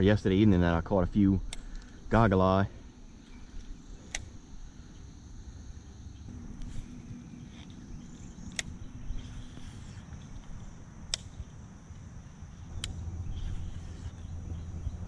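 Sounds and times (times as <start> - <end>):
insects buzzing drone: 0.0 - 15.0
sharp clicks: 1.5 - 2.0, 3.2 - 4.4, 8.4 - 9.6, 10.2 - 13.2.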